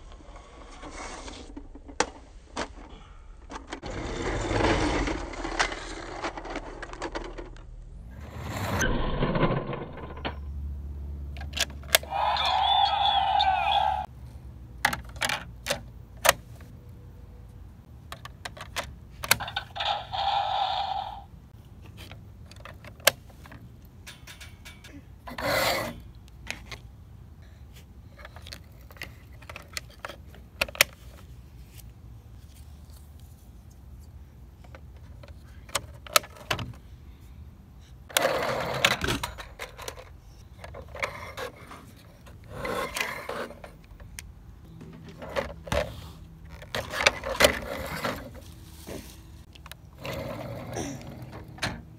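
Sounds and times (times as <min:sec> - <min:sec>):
plastic toy car clicks and scraping: 0:00.1 - 0:10.4, 0:11.3 - 0:14.1, 0:18.0 - 0:23.7, 0:28.1 - 0:36.8, 0:38.0 - 0:51.6.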